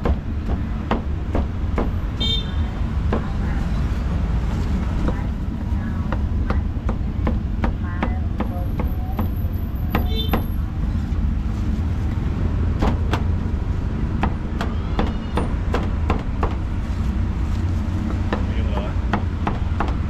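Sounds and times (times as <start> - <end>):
cleaver chopping on wooden block: 18.1 - 20.0.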